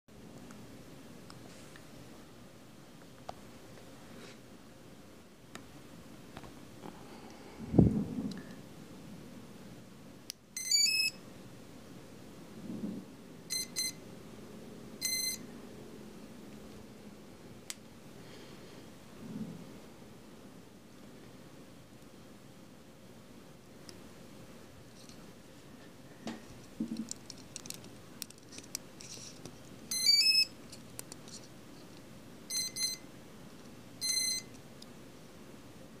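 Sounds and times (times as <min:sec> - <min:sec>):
short electronic beeps: 0:10.6 - 0:11.2, 0:13.5 - 0:14.0, 0:15.0 - 0:15.4, 0:29.9 - 0:30.5.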